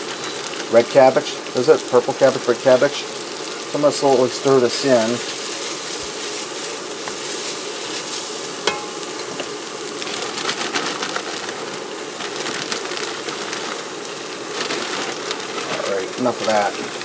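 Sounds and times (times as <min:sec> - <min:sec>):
cabbage sizzling in fat: 0:00.0 - 0:17.0
spatula stirring: 0:04.8 - 0:11.8.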